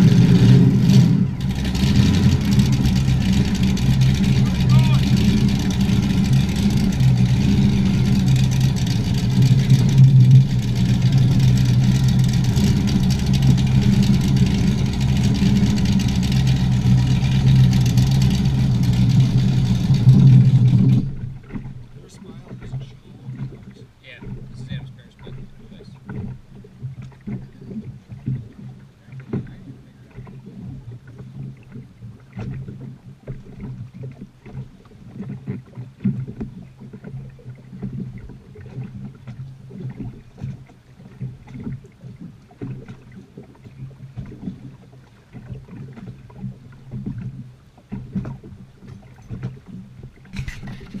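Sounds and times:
boat engine idling: 0.0 - 51.0
knocks on a boat: 26.0 - 31.7, 32.3 - 37.2, 42.6 - 50.4.

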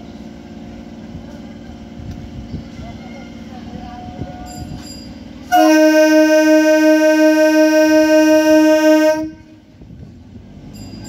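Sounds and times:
train horn blast: 5.5 - 9.6.

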